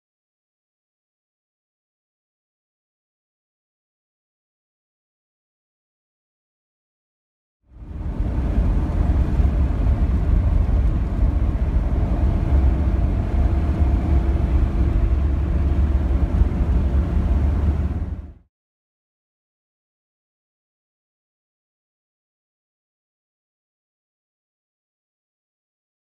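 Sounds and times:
car driving on paved road: 0:07.7 - 0:18.4.

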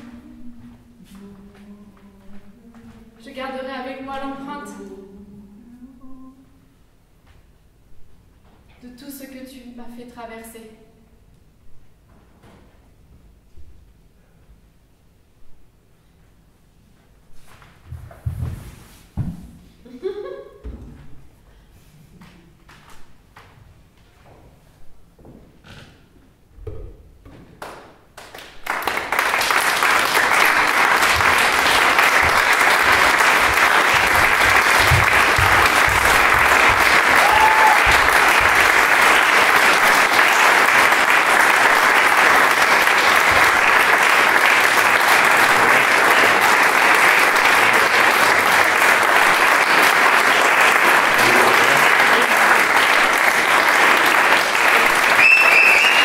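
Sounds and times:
audience applauding: 0:27.6 - 0:56.0
short high cheer: 0:33.6 - 0:39.1, 0:54.4 - 0:56.0.

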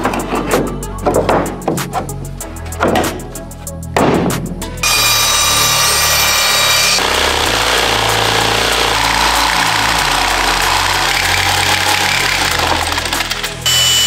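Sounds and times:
electric jigsaw sawing wood: 0:04.8 - 0:14.0
miter saw motor whining: 0:04.8 - 0:14.0.

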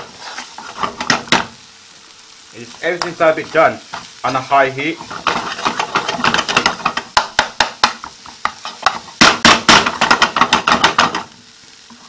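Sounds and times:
metal utensil scraping frying pan: 0:00.0 - 0:01.5, 0:03.9 - 0:07.2
food frying: 0:00.0 - 0:12.0.

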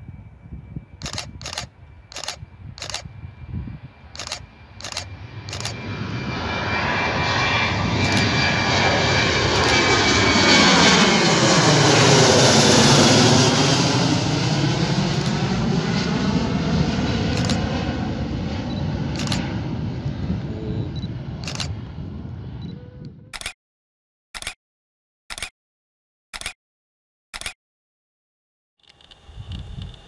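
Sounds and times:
jet plane roaring overhead: 0:00.0 - 0:23.3
camera shutter clicks: 0:01.0 - 0:03.1, 0:04.2 - 0:05.8, 0:08.0 - 0:08.3, 0:09.5 - 0:09.8, 0:15.1 - 0:15.4, 0:17.4 - 0:17.6, 0:19.1 - 0:19.4, 0:21.4 - 0:21.8, 0:23.4 - 0:23.6, 0:24.4 - 0:24.6, 0:25.3 - 0:25.5, 0:26.4 - 0:26.6, 0:27.4 - 0:27.6.

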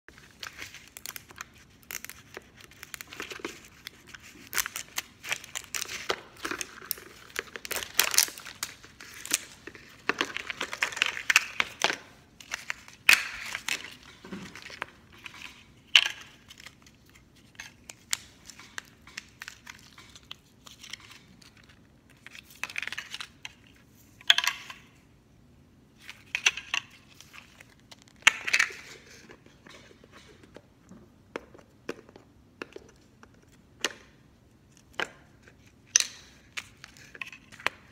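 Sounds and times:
plastic tearing: 0:00.1 - 0:23.5
plastic packaging crinkling: 0:00.1 - 0:23.7.

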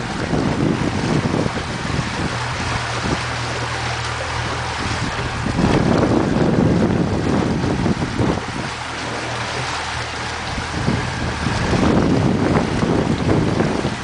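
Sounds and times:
boat motor humming: 0:00.0 - 0:14.0
choppy water sloshing: 0:00.0 - 0:14.0
wind buffeting microphone: 0:00.0 - 0:14.0.

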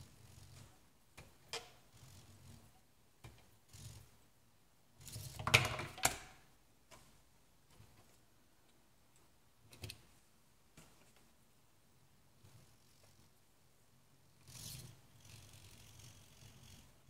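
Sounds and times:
tiny motor whirring: 0:14.4 - 0:16.9.

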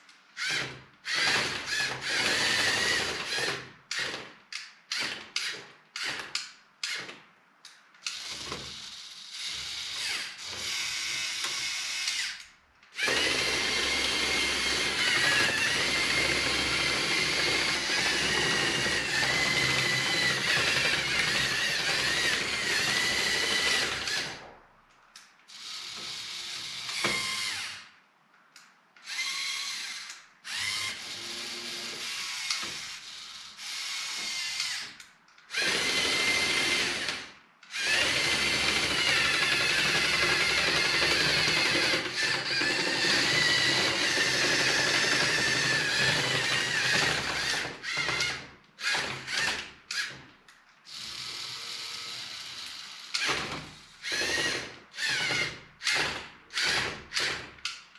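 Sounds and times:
small electric motors whirring: 0:29.0 - 0:37.0.

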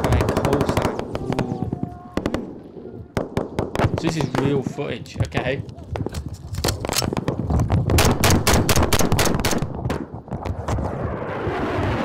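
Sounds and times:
rifle and machine-gun fire: 0:00.0 - 0:01.5, 0:02.2 - 0:04.6, 0:06.8 - 0:10.1.

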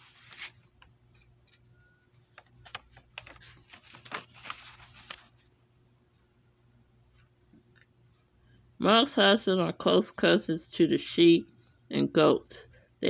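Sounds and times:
paper pages rustling: 0:00.0 - 0:00.7, 0:02.3 - 0:05.5
paper crinkles and taps: 0:02.3 - 0:05.5.

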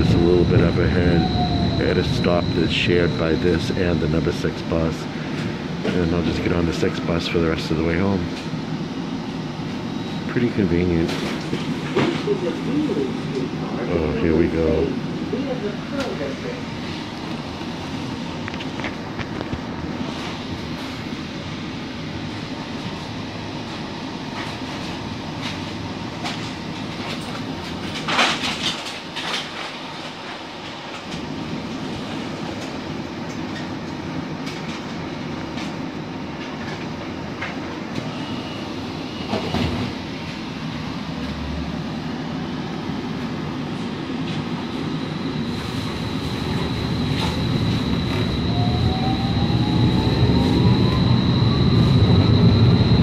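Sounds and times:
streetcar rumbling on rails: 0:00.0 - 0:03.7, 0:43.4 - 0:53.0.

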